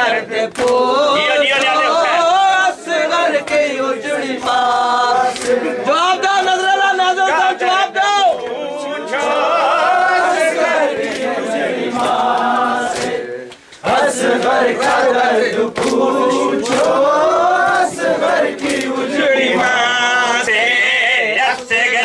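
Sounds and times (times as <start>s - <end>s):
men singing a lament: 0.0s - 22.0s
hands slapping bare chests: 0.5s - 1.8s, 3.4s - 3.8s, 4.4s - 5.7s, 11.0s - 19.1s.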